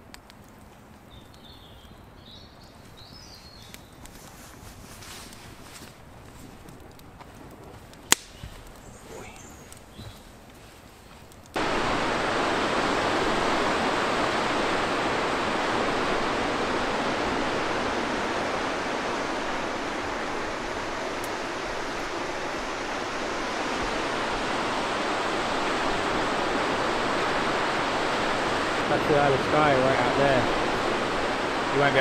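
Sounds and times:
surf breaking on beach: 11.6s - 32.0s.

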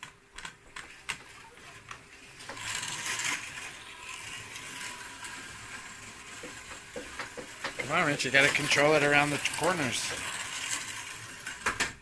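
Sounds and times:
slot car motor whirring: 0.9s - 12.0s
slot car rattling: 2.4s - 11.8s.

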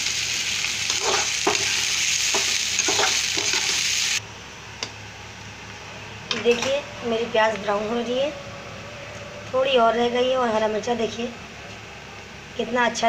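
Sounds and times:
onions sizzling in hot oil: 0.0s - 4.2s.

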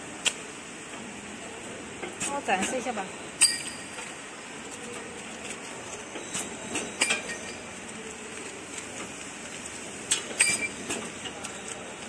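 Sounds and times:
wrapping machine running: 0.0s - 12.0s.

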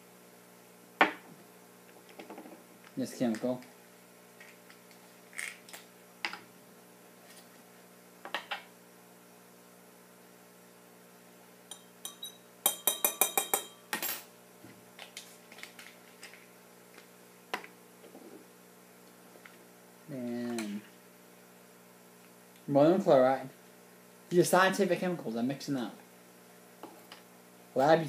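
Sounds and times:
glass jars clinking: 11.7s - 13.8s.

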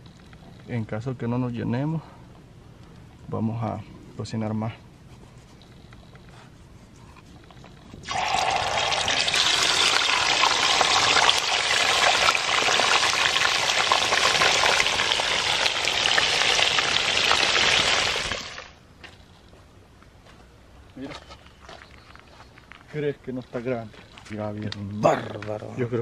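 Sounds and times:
fish sizzling in hot oil: 8.0s - 18.7s.

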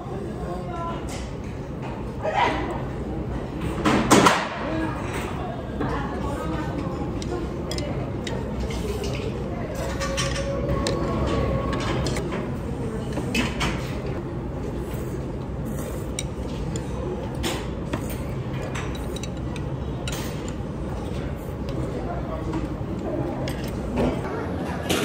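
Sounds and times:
restaurant room hum: 0.0s - 25.0s
chopsticks and dishes clicking: 6.8s - 11.0s, 16.1s - 20.6s.

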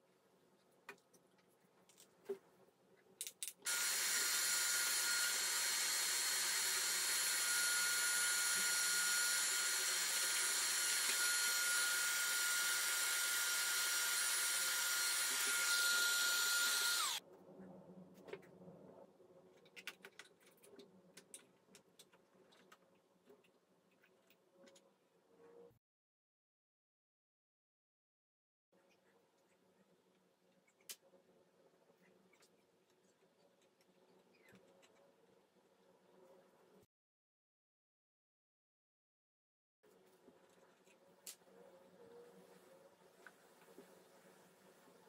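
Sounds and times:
handheld vacuum cleaner whining: 3.7s - 17.2s.

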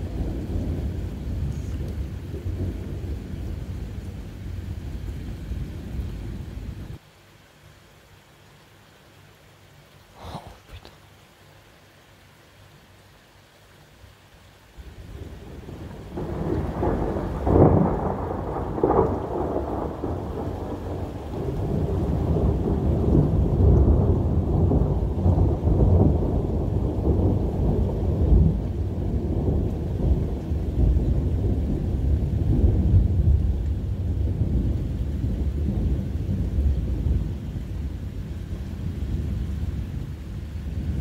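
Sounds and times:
low rolling thunder rumble: 0.0s - 7.0s, 14.8s - 41.0s
steady rain: 0.0s - 41.0s
sharp thunder cracks: 15.1s - 37.5s.

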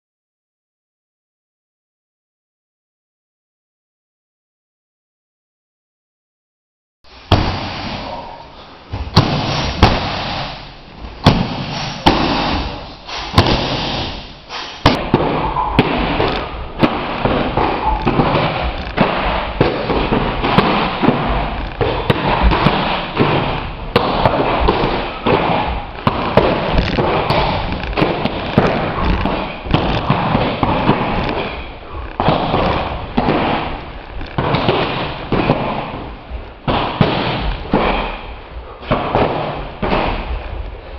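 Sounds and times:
strikes landing on pads: 7.3s - 8.3s, 8.9s - 40.6s.

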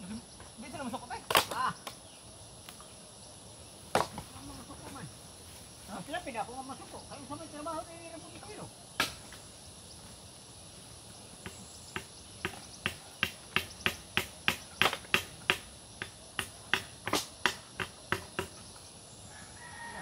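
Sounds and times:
high insect drone: 0.0s - 20.0s
tool knocking on coconuts: 3.9s - 4.3s, 11.4s - 18.6s.

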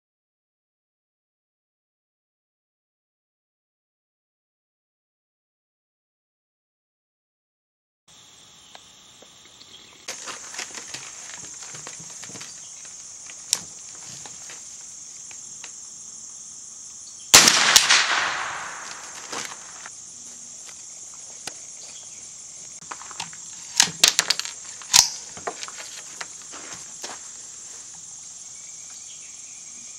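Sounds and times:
insects buzzing: 8.1s - 29.9s
rifle shot echoing: 17.3s - 19.8s
rapid sharp cracks: 17.4s - 19.9s.

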